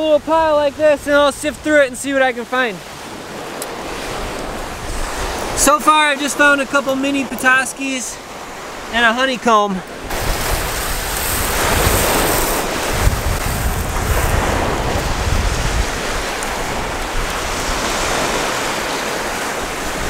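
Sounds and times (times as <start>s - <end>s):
wind buffeting microphone: 0.0s - 8.9s, 9.9s - 20.0s
lake surf: 0.0s - 20.0s.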